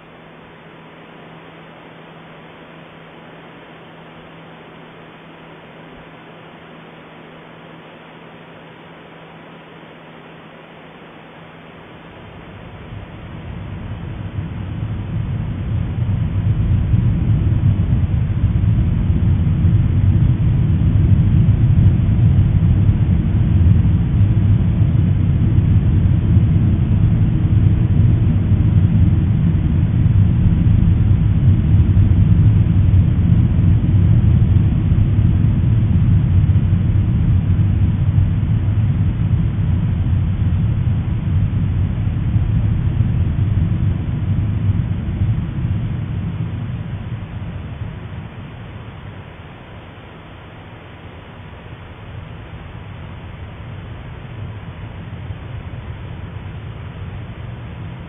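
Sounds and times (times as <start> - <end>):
volcano eruption rumble: 12.1 - 58.0.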